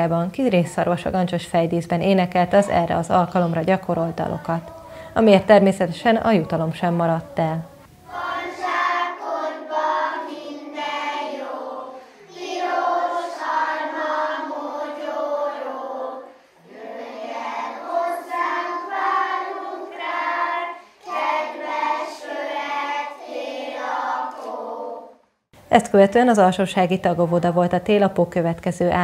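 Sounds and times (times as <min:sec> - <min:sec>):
young children singing: 0:03.4 - 0:05.2, 0:06.3 - 0:25.2.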